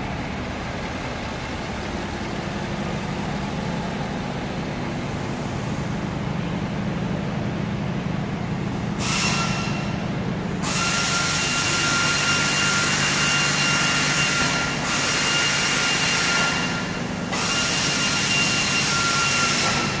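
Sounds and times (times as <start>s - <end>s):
machine whine: 8.8s - 20.0s
machine hiss: 8.9s - 10.0s, 10.6s - 20.0s.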